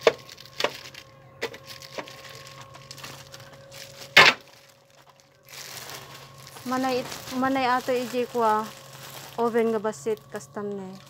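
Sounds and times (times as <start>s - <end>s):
electrical hum: 0.0s - 11.0s.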